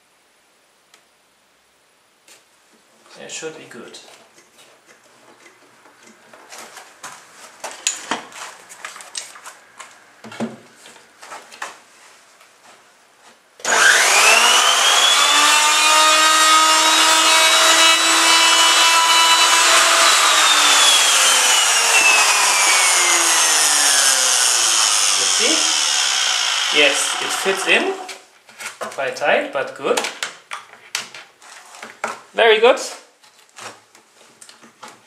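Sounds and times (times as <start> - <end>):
electric router whining: 13.6 - 28.2.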